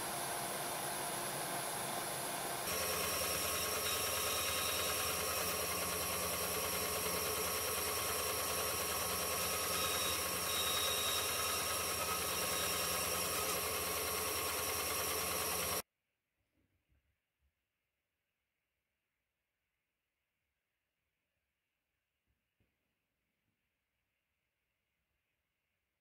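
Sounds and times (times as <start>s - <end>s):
band saw cutting wood: 2.6s - 15.8s.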